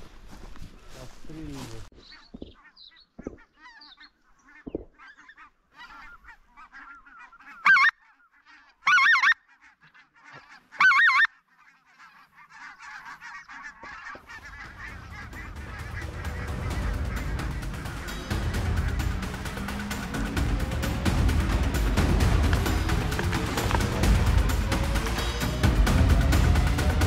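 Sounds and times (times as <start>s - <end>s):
geese honking: 2.0s - 27.0s
low rumble: 14.3s - 27.0s.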